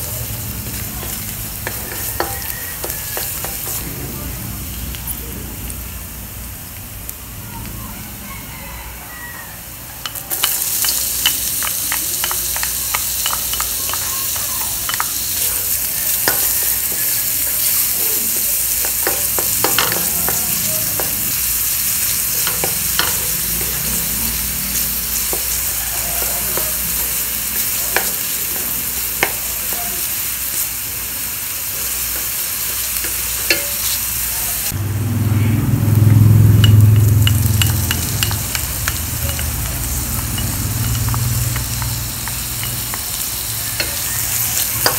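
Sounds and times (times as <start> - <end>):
onion sizzling in hot oil: 0.0 - 44.9
low rumble: 3.7 - 7.7, 34.7 - 42.9.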